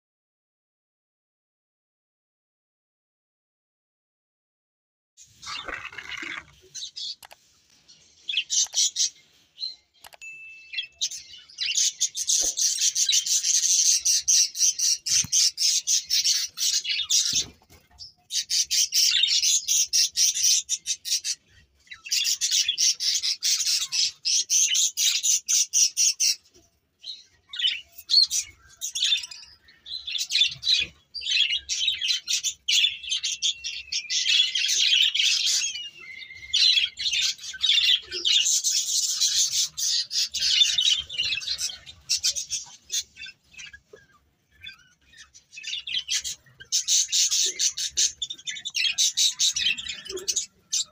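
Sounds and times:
budgerigars chattering: 8.3 - 9.2, 11.0 - 17.6, 18.3 - 26.4, 27.5 - 50.9.

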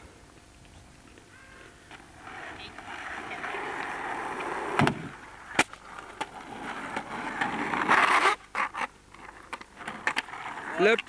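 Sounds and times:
skateboard clacking: 1.9 - 11.0
skateboard snap: 3.7 - 6.3.

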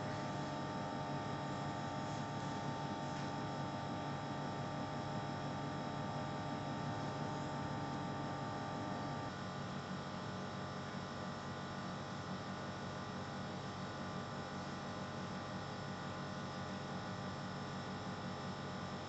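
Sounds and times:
electrical hum with buzz: 0.0 - 19.0.

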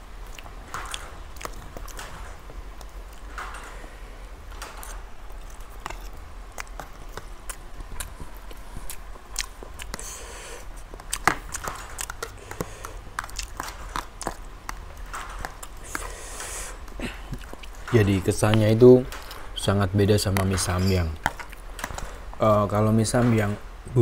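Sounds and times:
person chewing noodles: 0.2 - 4.0, 4.8 - 17.9, 21.2 - 22.2.

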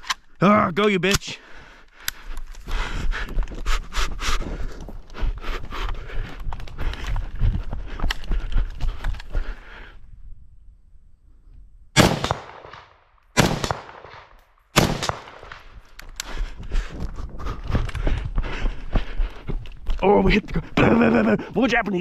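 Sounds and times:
rifle shots: 12.0 - 15.7.

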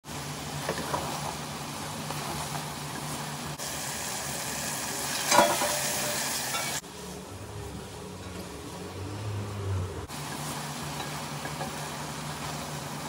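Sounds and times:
food sizzling in a pan: 0.1 - 7.2, 10.1 - 13.0.

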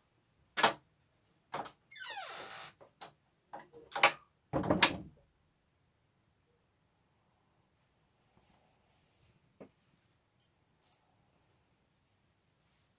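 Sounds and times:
door creak sliding down: 1.6 - 2.8
wooden door knocks: 4.6 - 5.1.

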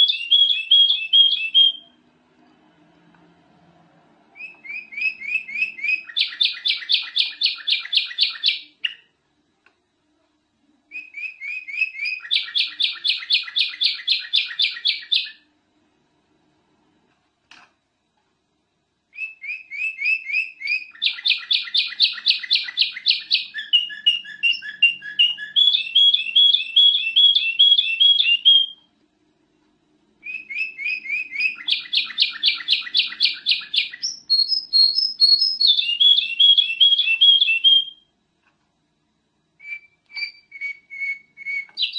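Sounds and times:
bird singing whistled notes: 0.0 - 2.0, 4.4 - 9.1, 10.9 - 15.5, 19.1 - 28.9, 30.2 - 38.1, 39.6 - 41.9.

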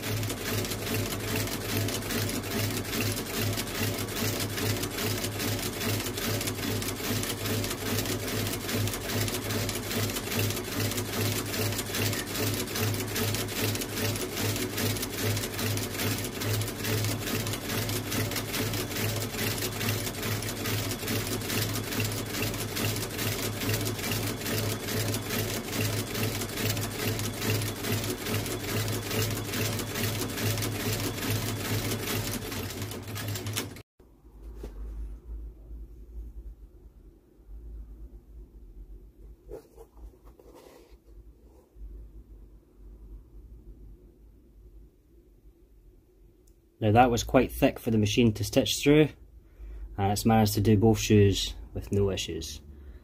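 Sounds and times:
stitching machine needle clatter: 0.0 - 33.8.

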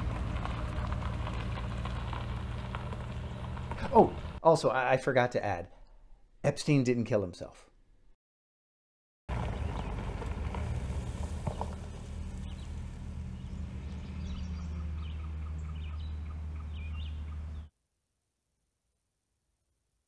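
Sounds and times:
car engine running: 0.0 - 4.4, 9.3 - 17.7
birds chirping: 9.3 - 17.7.

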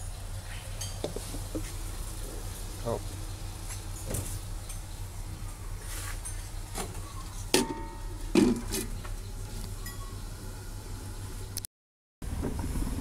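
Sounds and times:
steady low hum: 0.0 - 11.7
metallic ring: 7.6 - 8.3, 9.8 - 10.2
metal bowl clanking on wok: 7.6 - 8.8.

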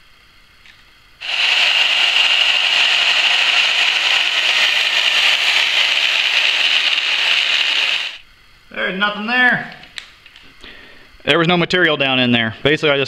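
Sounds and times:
angle grinder cutting steel: 1.2 - 8.2.

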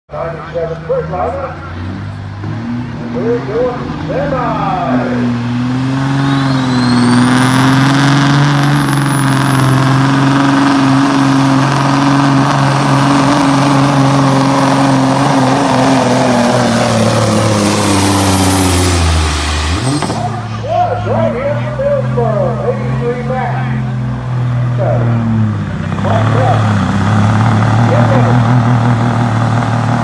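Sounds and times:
diesel truck engine straining: 0.1 - 30.0
thin high whistle: 6.3 - 7.3.

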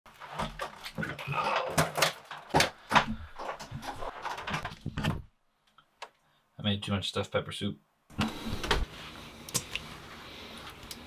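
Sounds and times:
kitchen items clattering: 0.1 - 5.2.

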